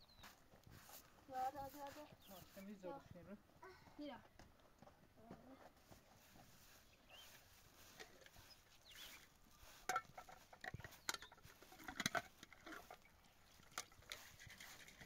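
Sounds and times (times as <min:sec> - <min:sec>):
hard objects clinking and knocking: 0:09.8 - 0:15.0.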